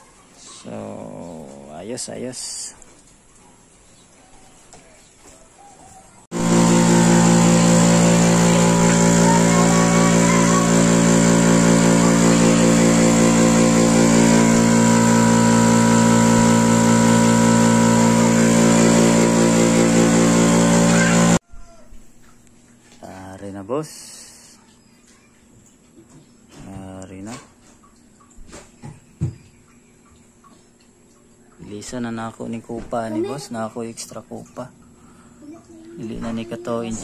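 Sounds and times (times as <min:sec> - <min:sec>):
air compressor humming: 0:06.3 - 0:21.4.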